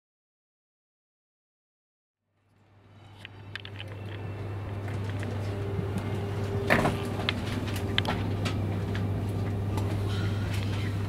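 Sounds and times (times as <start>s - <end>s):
train carriage low hum: 2.3s - 11.0s
scattered clicks and knocks: 6.7s - 9.1s.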